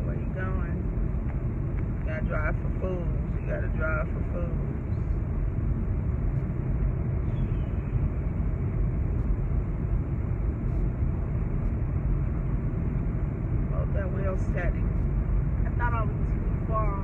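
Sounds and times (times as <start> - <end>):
car running: 0.0 - 17.0.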